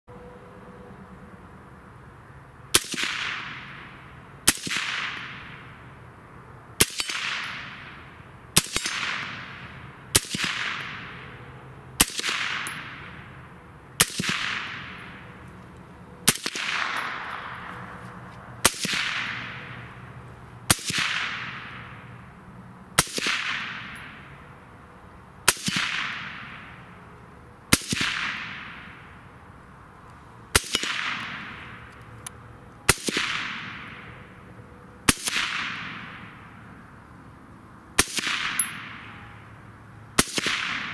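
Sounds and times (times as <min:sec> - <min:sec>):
suppressed rifle shots: 0:16.3 - 0:17.6.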